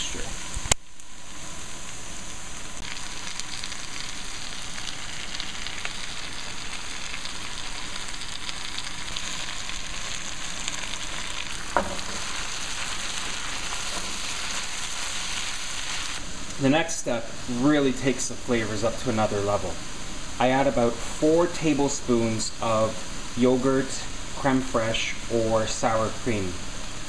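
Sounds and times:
vegetables sizzling in oil: 0.0s - 27.0s.

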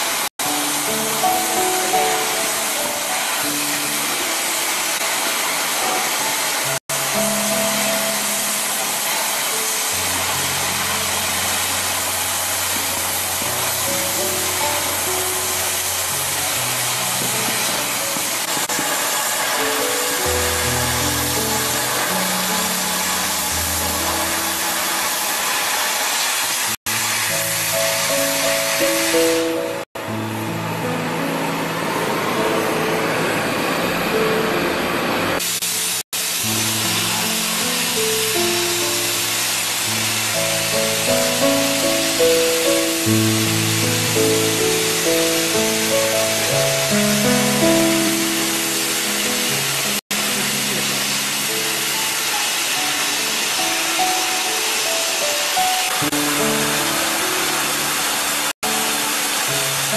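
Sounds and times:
cutting torch hissing: 0.0s - 59.9s.

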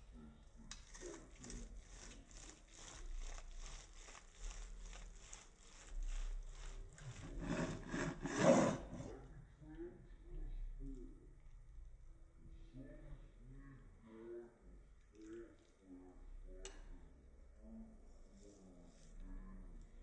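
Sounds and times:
knife sawing through steak crust: 0.8s - 9.1s.

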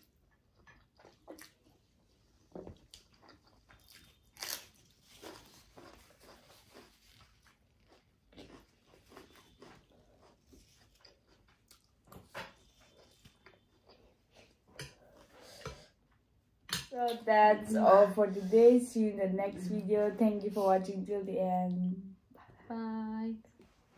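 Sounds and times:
chewing and biting seafood: 2.9s - 14.2s.

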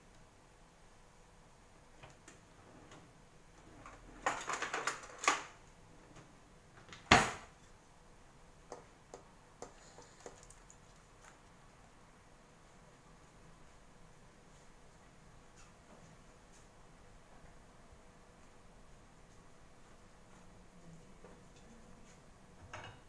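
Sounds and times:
clicks and knocks on kitchen counter: 22.6s - 23.0s.

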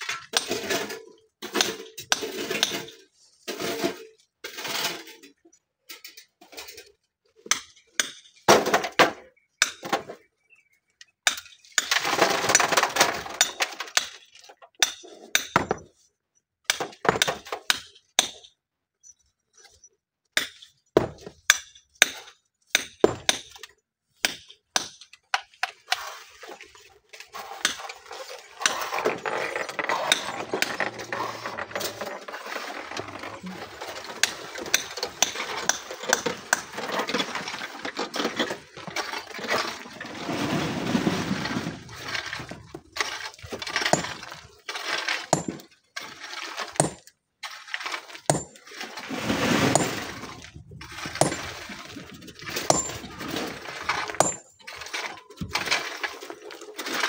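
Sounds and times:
stones scraping and rattling: 25.7s - 57.0s
rocks clinking and knocking: 27.6s - 40.5s, 41.1s - 57.0s.

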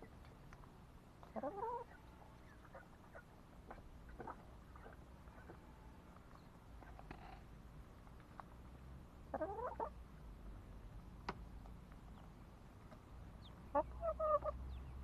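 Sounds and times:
chickens clucking: 0.0s - 7.4s, 9.3s - 10.0s, 12.1s - 15.0s.

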